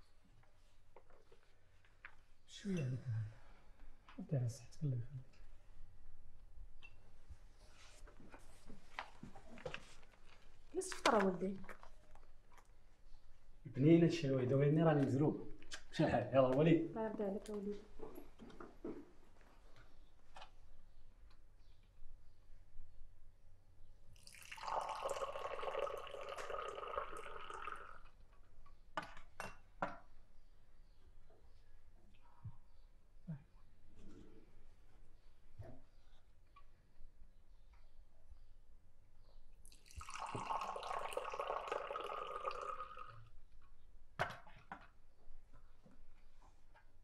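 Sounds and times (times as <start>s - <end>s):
tea pouring into glass: 24.2s - 28.1s, 39.7s - 43.2s.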